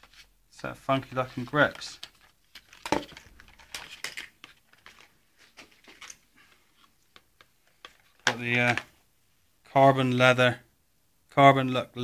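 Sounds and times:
packaging crinkling and rustling: 1.7s - 6.9s.

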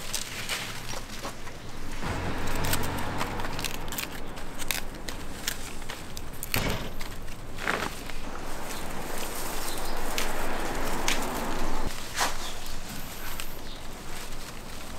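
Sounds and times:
leaves snapping and rustling: 0.0s - 14.9s
low rumble: 1.8s - 7.6s.

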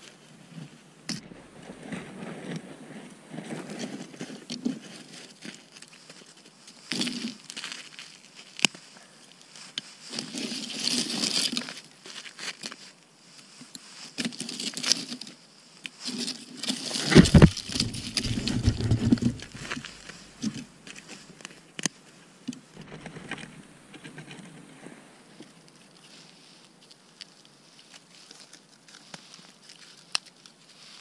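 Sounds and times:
twigs rustling and snapping: 3.6s - 12.8s, 13.7s - 24.7s, 25.4s - 31.0s
jacket sleeve rubbing on camera: 17.0s - 20.4s.

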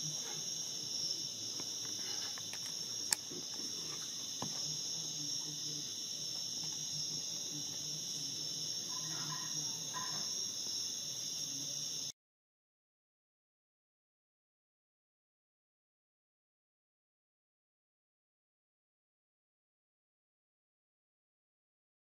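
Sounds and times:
insects trilling: 0.0s - 12.1s.

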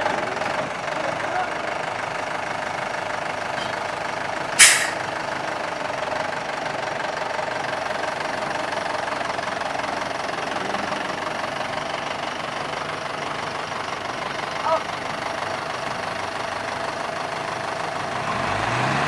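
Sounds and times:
diesel engine running: 0.0s - 19.0s
short loud burst of noise: 4.6s - 5.0s.

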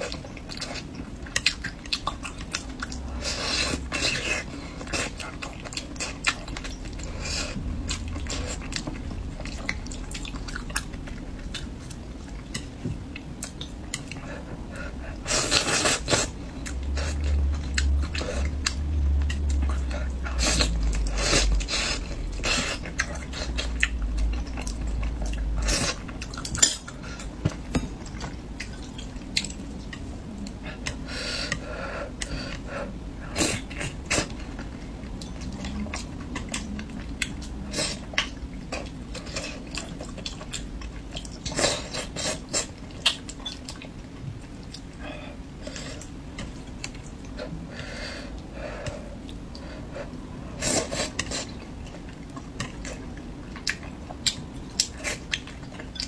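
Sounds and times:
low rumble: 5.2s - 12.4s, 16.4s - 31.1s.

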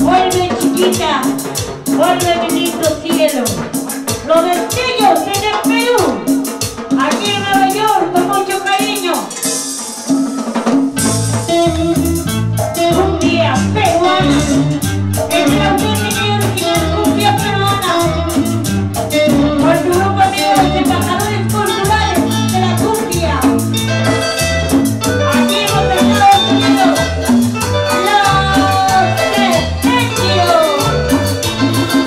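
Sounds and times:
bass line: 0.0s - 4.4s, 10.9s - 32.0s
live cumbia band playing: 0.0s - 32.0s.

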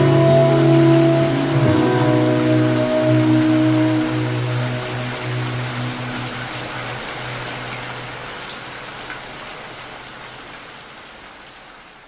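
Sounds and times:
soft background music: 0.0s - 9.6s
steady rain: 0.0s - 12.0s.

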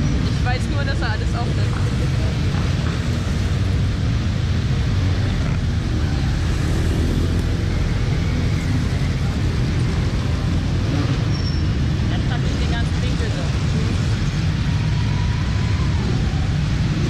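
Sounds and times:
motorcycles rumbling past: 0.0s - 17.0s.

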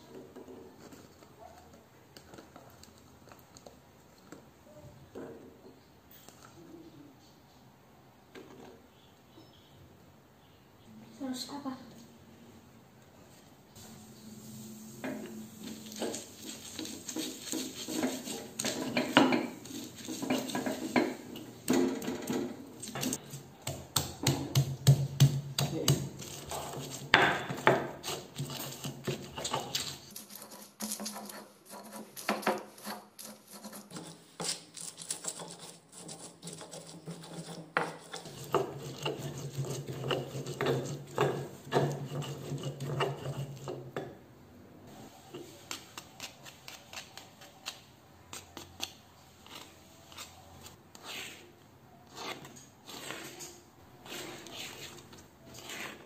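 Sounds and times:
stone pestle pounding in mortar: 15.9s - 29.9s.

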